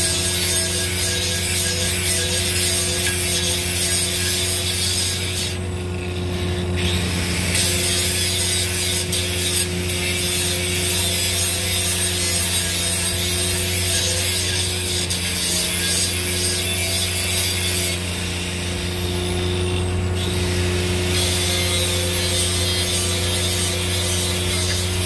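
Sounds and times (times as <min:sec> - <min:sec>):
machine humming: 0:15.0 - 0:25.0.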